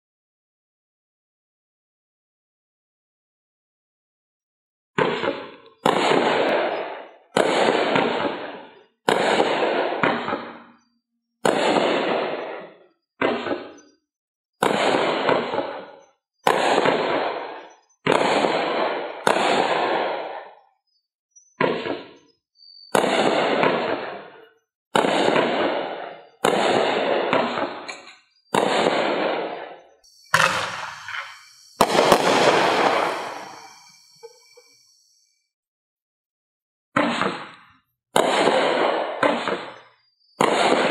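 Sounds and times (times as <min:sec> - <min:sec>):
fireworks bangs: 0:05.0 - 0:10.8, 0:11.4 - 0:13.8, 0:14.6 - 0:15.9, 0:16.5 - 0:20.4, 0:22.9 - 0:24.4, 0:25.0 - 0:35.1, 0:37.0 - 0:39.8, 0:40.4 - 0:40.9.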